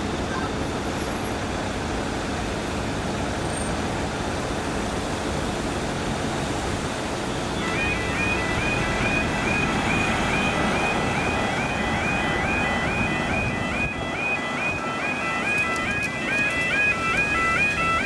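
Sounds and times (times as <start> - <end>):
road traffic: 0.0 - 18.0
crossing warning alarm tone: 7.3 - 18.0.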